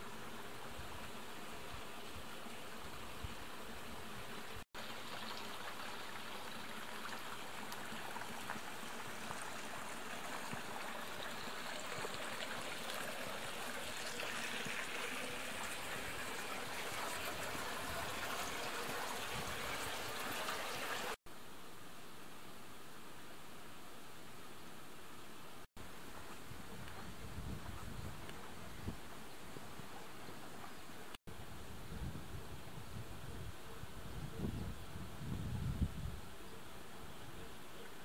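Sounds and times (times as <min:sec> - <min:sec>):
stream water running: 0:00.0 - 0:21.2, 0:25.8 - 0:31.2.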